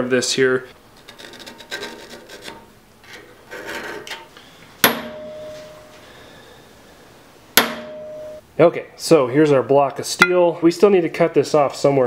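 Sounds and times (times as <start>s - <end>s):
scribe scratching steel: 1.0s - 5.9s
hammer striking centre punch: 4.8s - 5.9s, 7.6s - 8.4s
metallic ringing tone: 4.9s - 6.1s, 7.6s - 8.4s.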